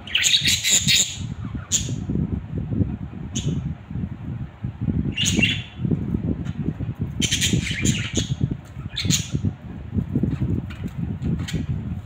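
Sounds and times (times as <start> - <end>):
budgerigars chirping and squawking: 0.0 - 2.1, 5.1 - 5.8, 7.2 - 9.4.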